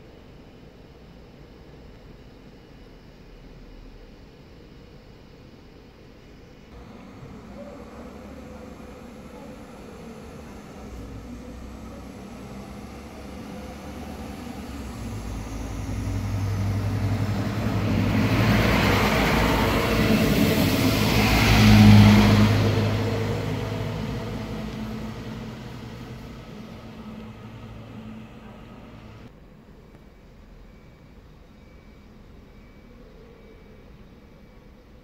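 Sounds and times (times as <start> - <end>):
diesel engine hum: 6.8 - 29.3
train wheels on rails: 6.8 - 29.3.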